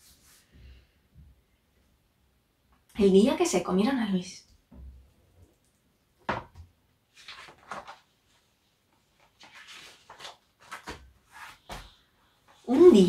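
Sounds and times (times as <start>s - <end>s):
paper pages rustling: 7.1s - 13.0s.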